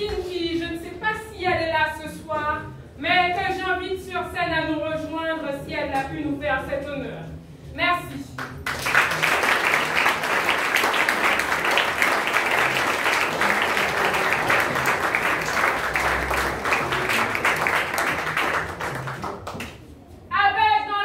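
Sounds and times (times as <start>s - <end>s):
audience applauding: 8.5s - 19.8s.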